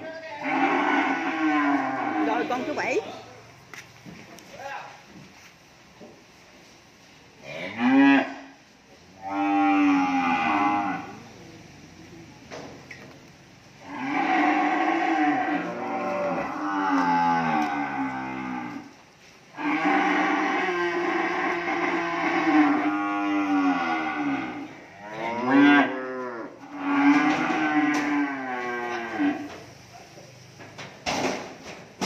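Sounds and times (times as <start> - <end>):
cattle mooing: 0.4 - 3.0, 7.5 - 8.5, 9.2 - 11.2, 13.8 - 18.9, 19.5 - 29.6.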